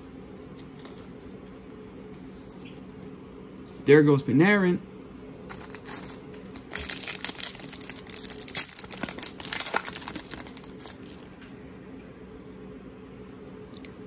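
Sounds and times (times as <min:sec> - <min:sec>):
foil wrapper tearing and crinkling: 0:05.5 - 0:11.4.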